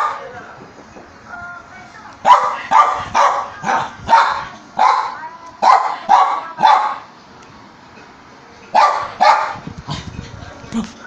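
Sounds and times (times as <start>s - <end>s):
small dog barking: 2.2s - 7.1s, 8.7s - 9.6s.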